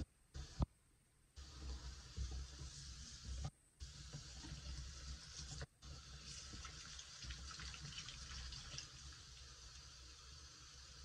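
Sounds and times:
tap water running into sink: 3.8 - 10.3.

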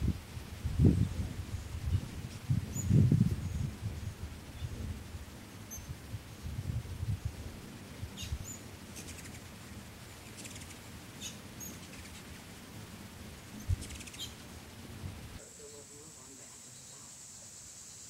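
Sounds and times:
hummingbird buzzy chatters: 0.0 - 18.0
hummingbird chip notes: 7.2 - 14.6.

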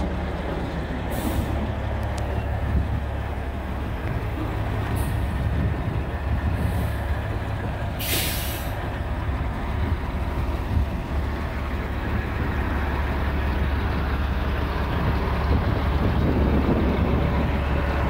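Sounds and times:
truck diesel engine idling: 0.0 - 18.0
air release hiss: 8.0 - 8.8.

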